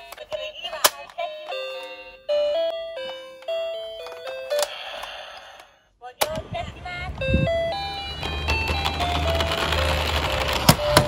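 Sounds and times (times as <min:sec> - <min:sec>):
toy electronic beeping melody: 0:01.3 - 0:05.1, 0:06.7 - 0:11.0.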